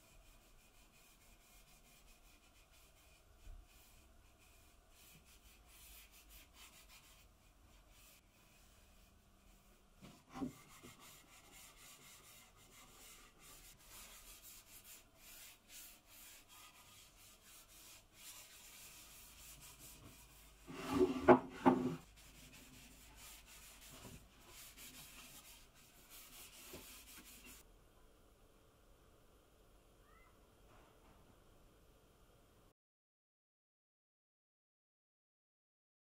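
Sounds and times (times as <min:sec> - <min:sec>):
cloth wiping wood: 0:00.0 - 0:27.6
wooden knocks and scraping: 0:20.7 - 0:22.0.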